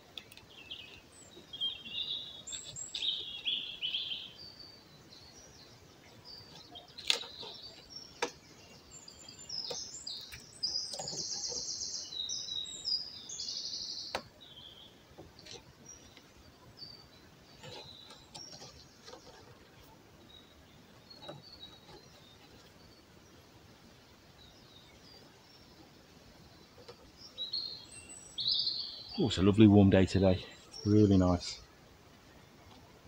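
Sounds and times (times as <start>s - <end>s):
songbirds singing: 0.0s - 33.0s
twine clicks and rustles: 9.6s - 11.8s, 17.6s - 19.9s.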